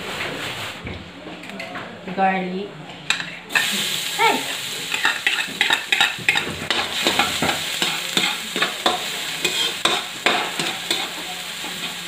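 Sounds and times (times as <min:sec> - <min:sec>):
garlic sizzling in oil: 0:03.5 - 0:12.0
metal spatula scraping a wok: 0:04.9 - 0:12.0.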